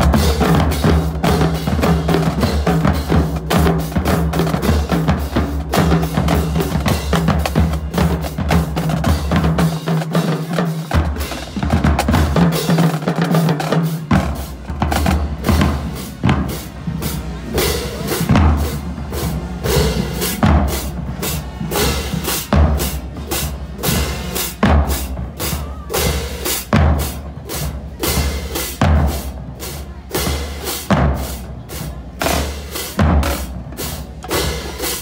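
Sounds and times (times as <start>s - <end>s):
bass drums: 0.0s - 35.0s
snare drum strokes: 0.0s - 35.0s
tenor drums: 0.0s - 35.0s.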